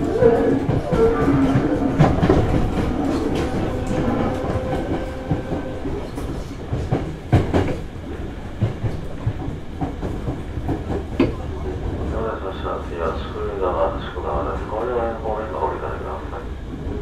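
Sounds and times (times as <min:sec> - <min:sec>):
train wheels clicking over rail joints: 0:00.0 - 0:12.0
train steady hum: 0:00.0 - 0:17.0.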